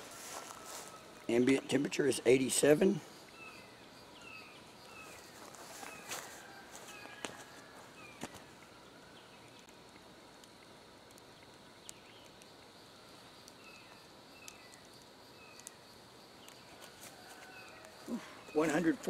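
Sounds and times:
faint insect drone: 0.0 - 19.0
faint ticks: 9.6 - 12.8, 13.4 - 18.0.

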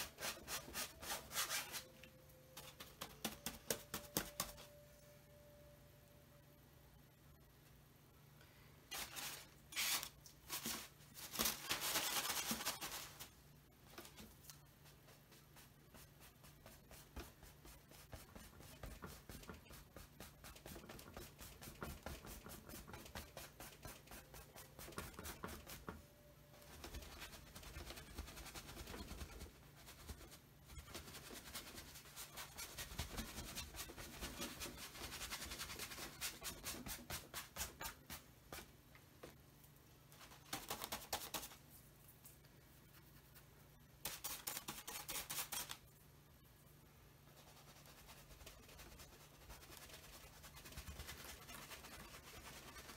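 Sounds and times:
paintbrush scrubbing on canvas: 0.0 - 1.9, 47.3 - 52.9.

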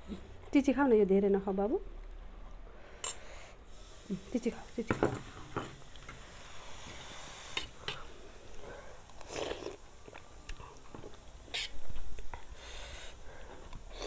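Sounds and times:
person chewing: 9.1 - 12.4
noodle slurp: 9.2 - 10.2.

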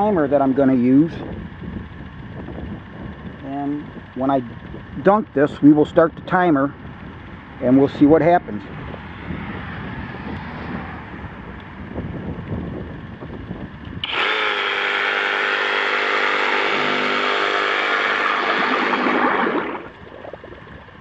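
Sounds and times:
water spraying: 14.0 - 20.3
reciprocating saw motor running: 14.0 - 21.0.

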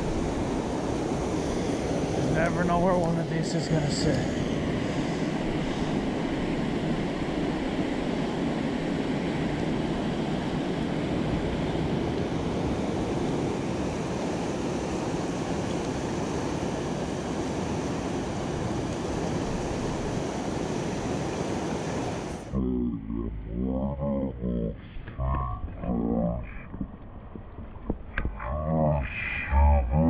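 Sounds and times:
river water rushing over rapids: 0.0 - 22.6.

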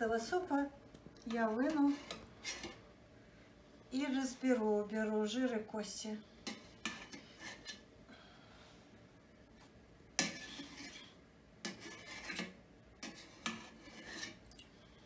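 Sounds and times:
metal spoon scraping in pot: 1.3 - 2.8, 6.4 - 7.8, 10.2 - 14.5.

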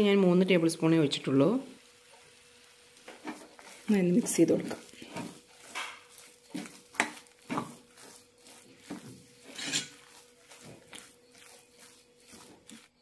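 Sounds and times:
metal spoon scraping a pan: 3.1 - 13.0.

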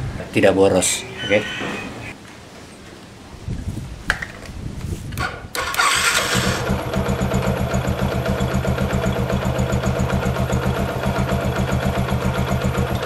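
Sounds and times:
motorcycle engine cranking: 5.2 - 13.0
motorcycle engine idling: 6.4 - 13.0.

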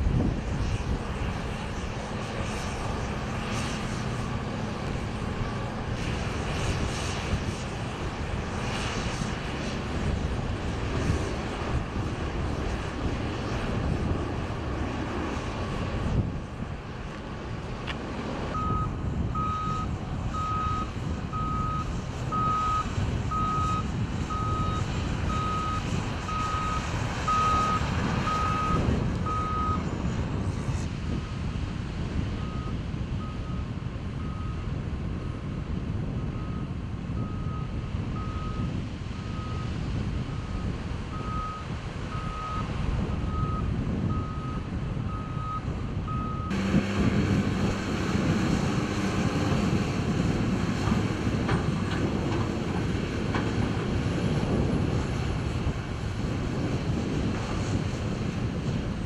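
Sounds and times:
bulldozer diesel engines rumbling: 0.0 - 59.0
heavy machine engine: 0.0 - 59.0
backup alarm beeping: 18.6 - 29.8.

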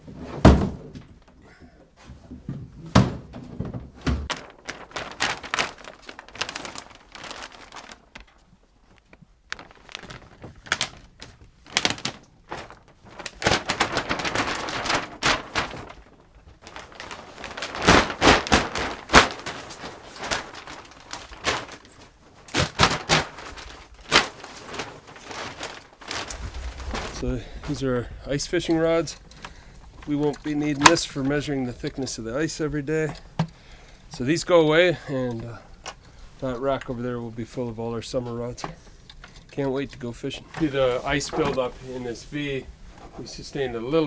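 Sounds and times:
scraping and rustling: 3.3 - 27.9.

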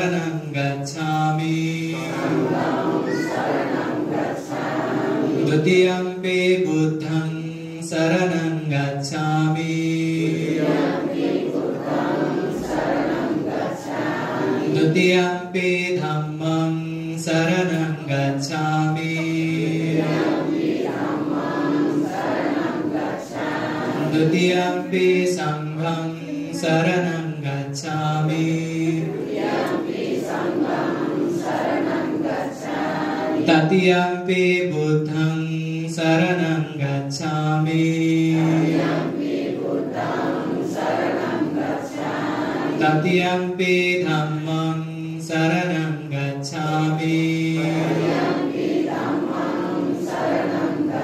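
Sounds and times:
group of voices chanting: 1.9 - 5.7, 10.2 - 15.0, 19.1 - 25.2, 28.4 - 33.7, 38.2 - 43.1, 47.4 - 51.0.

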